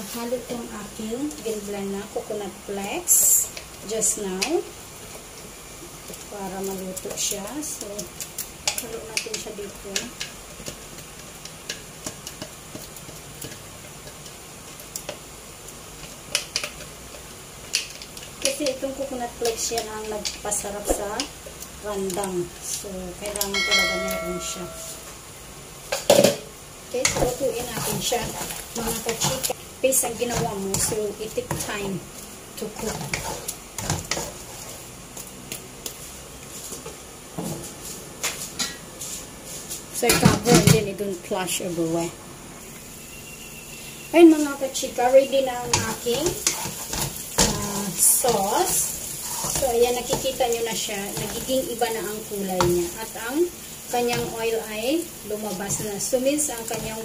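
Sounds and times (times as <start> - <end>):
paste sizzling in oil: 0.0 - 40.5, 42.6 - 57.0
spatula clicking against pan: 8.3 - 10.8, 16.3 - 18.8
small pops and ticks: 16.0 - 18.8
wooden spatula scraping pan: 27.0 - 32.0, 32.6 - 34.9, 45.6 - 53.0.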